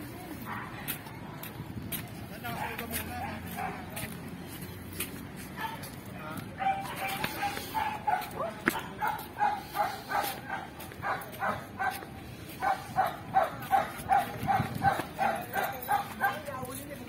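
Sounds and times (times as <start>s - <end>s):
dog barking: 5.6s - 5.9s, 6.6s - 16.5s.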